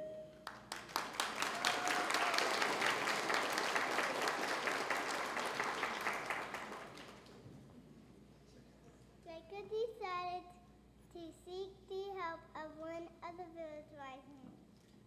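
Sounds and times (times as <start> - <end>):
audience applauding: 0.4 - 7.4.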